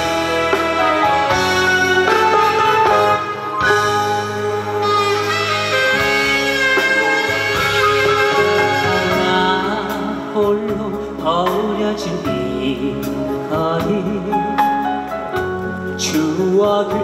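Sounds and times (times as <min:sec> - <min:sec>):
live band music: 0:00.0 - 0:17.0
man singing with vibrato: 0:06.4 - 0:15.0, 0:16.0 - 0:17.0.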